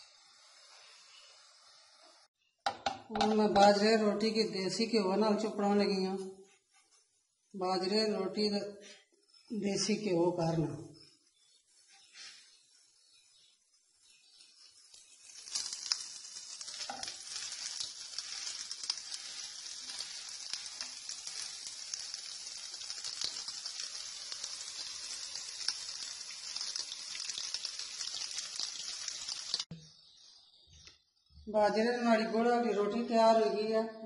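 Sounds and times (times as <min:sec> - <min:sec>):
ghee sizzling on a griddle: 0:00.0 - 0:04.4, 0:09.0 - 0:10.0, 0:11.0 - 0:30.6.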